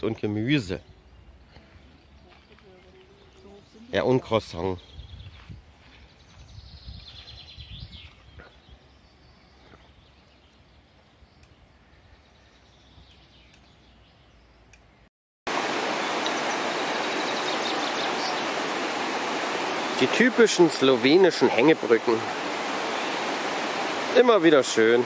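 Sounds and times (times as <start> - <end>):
fast-flowing river rushing: 15.5 - 25.0
faint bird chirps: 15.9 - 18.6.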